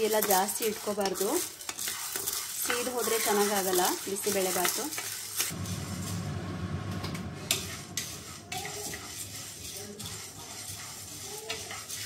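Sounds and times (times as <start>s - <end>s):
lentils rattling in pan: 0.0s - 6.2s, 7.7s - 12.0s
low hum: 5.5s - 8.6s.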